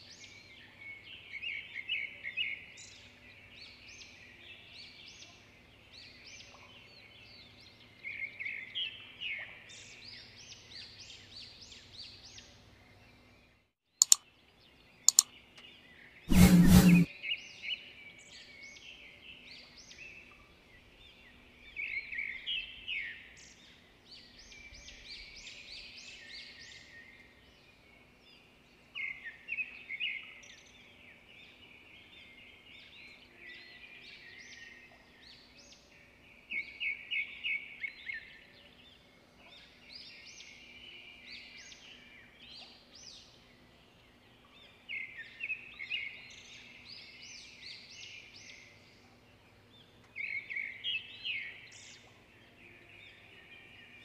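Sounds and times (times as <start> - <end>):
sharp clicks: 14.0 - 14.2
small birds chirping: 14.0 - 17.1.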